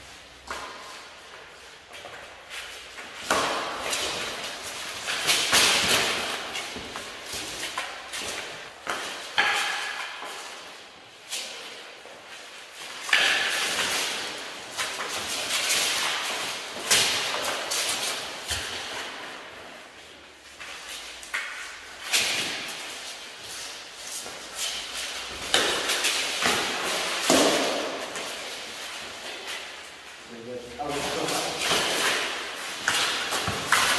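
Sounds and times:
thumps and clatters of blows: 0:24.6 - 0:28.4.

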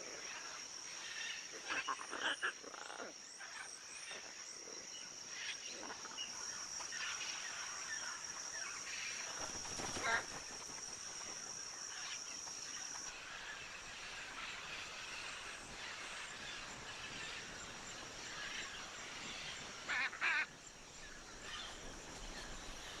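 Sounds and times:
faint rainforest hum: 0:00.0 - 0:23.0
high insect drone: 0:00.0 - 0:23.0
macaws squawking: 0:09.8 - 0:10.4.

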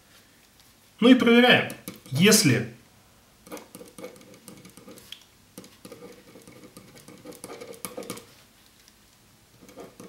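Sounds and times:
marker pen scratching on paper: 0:03.5 - 0:08.4, 0:09.6 - 0:10.0.

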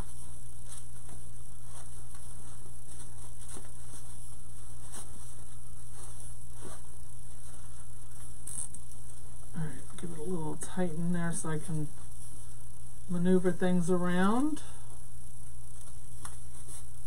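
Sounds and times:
ribbon rustling: 0:00.0 - 0:10.2
low hum and hiss: 0:00.0 - 0:17.0.

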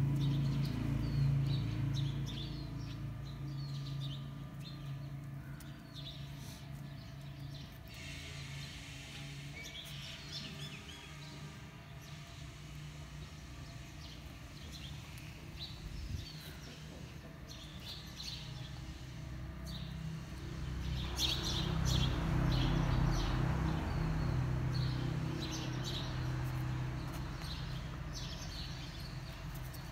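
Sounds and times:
low hum and rumble: 0:00.0 - 0:23.0.

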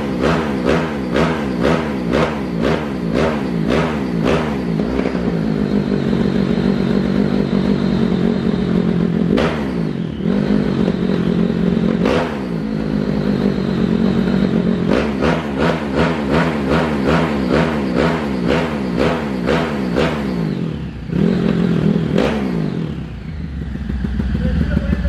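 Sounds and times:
motorcycle engine revving: 0:00.0 - 0:25.0.

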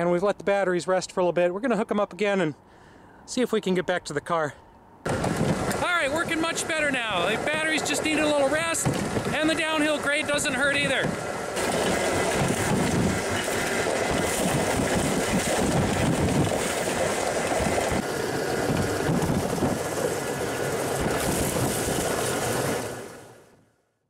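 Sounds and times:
rail speeder wheels clattering on rails: 0:05.1 - 0:22.9.

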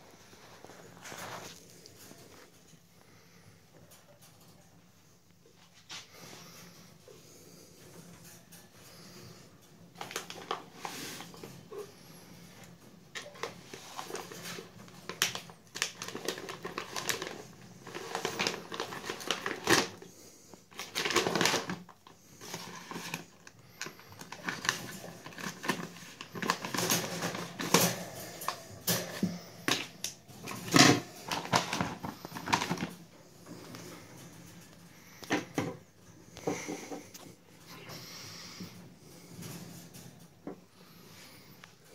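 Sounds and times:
packaging crinkling: 0:13.2 - 0:20.0, 0:20.7 - 0:28.0, 0:29.7 - 0:33.0
scissors cutting plastic bag: 0:15.1 - 0:20.0, 0:20.7 - 0:21.9.

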